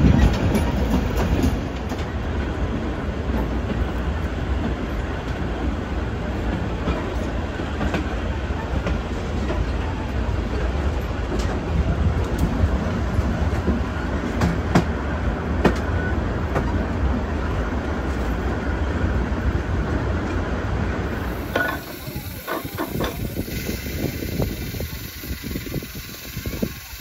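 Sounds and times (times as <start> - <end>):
wheels clicking over rail joints: 0.0 - 4.0, 21.1 - 27.0
train rumbling on track: 0.0 - 27.0.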